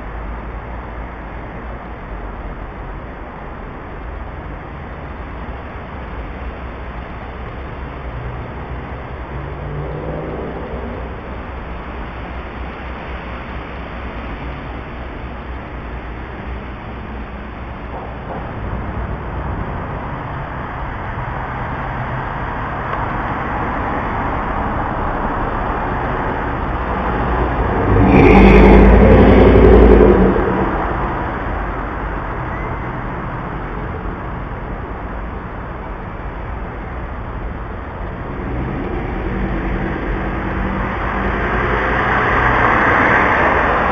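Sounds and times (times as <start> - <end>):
distant road traffic: 0.0 - 43.9
engine hum: 0.0 - 43.9
car driving past: 9.3 - 11.6, 17.9 - 34.3, 38.1 - 43.9.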